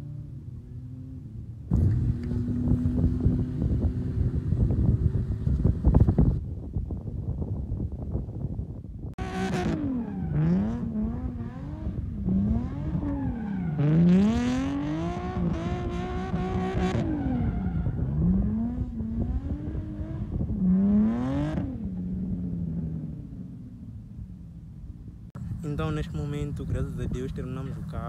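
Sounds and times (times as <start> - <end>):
car engine revving: 0.0 - 6.2, 9.2 - 24.2.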